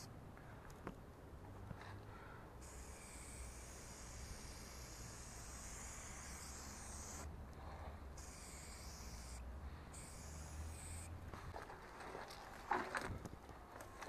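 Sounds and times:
spray paint can hissing: 0:02.6 - 0:07.3, 0:08.2 - 0:11.2.

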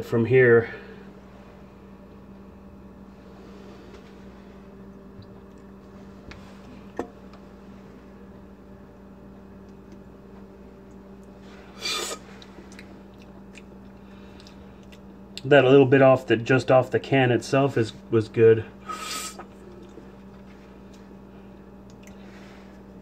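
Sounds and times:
steady low hum: 0:00.0 - 0:23.0
slurp from a drink can: 0:11.7 - 0:12.3, 0:18.9 - 0:19.5.

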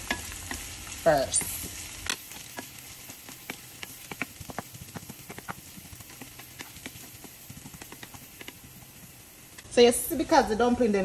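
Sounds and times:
vegetables sizzling in oil: 0:00.0 - 0:11.0
wooden spoon scraping pan: 0:01.3 - 0:09.0.

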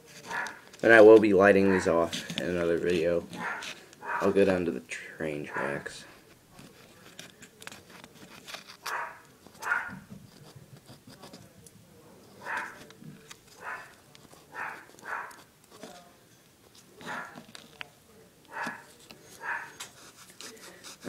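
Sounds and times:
scissors scraping cardboard tube: 0:06.6 - 0:09.6, 0:10.3 - 0:11.4, 0:18.6 - 0:21.0.

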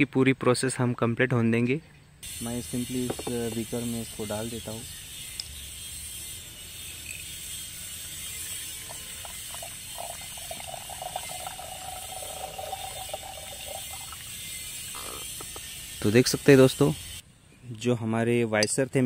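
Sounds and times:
steady high buzz: 0:02.2 - 0:17.3
liquid pouring into glass beaker: 0:08.8 - 0:14.8.

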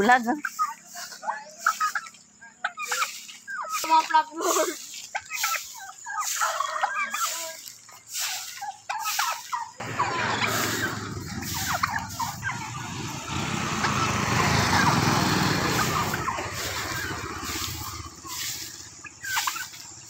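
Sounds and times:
turkeys calling: 0:00.0 - 0:20.0
motorcycle engine: 0:09.8 - 0:20.0.

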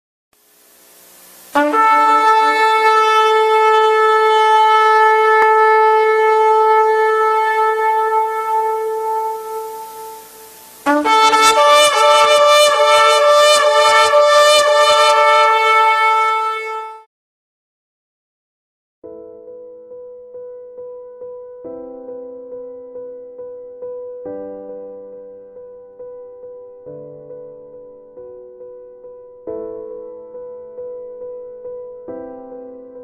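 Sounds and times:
ram's horn blowing: 0:01.6 - 0:17.1.

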